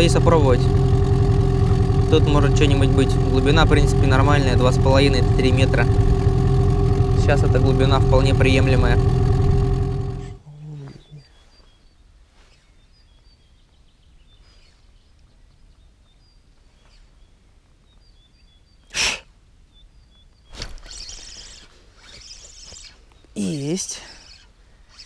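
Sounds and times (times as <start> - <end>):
faint bird chirps: 10.4 - 19.0, 19.7 - 25.0
fishing reel being cranked: 20.7 - 23.0, 24.1 - 25.0.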